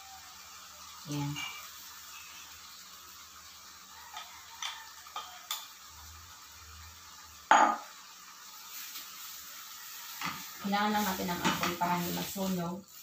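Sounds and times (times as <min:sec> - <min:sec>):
faint sizzle: 0:00.0 - 0:13.0
utensils clicking against frying pan: 0:04.1 - 0:05.8, 0:11.4 - 0:11.9.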